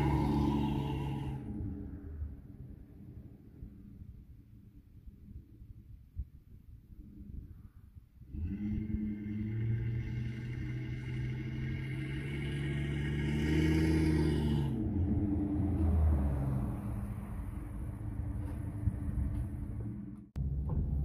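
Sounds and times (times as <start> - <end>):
truck engine passing by: 0.0 - 2.5, 8.4 - 20.6.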